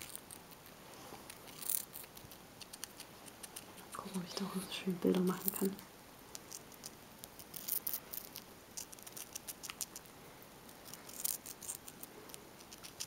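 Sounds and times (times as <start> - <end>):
hamster crunching food: 0.0 - 13.0.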